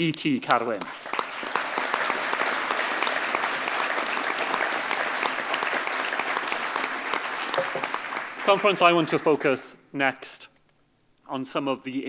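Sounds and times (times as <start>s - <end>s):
audience applauding: 0.8s - 9.5s.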